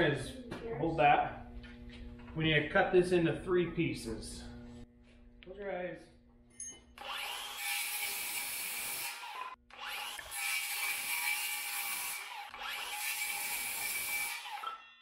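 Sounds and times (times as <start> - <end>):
circular saw cutting wood: 7.0 - 15.0.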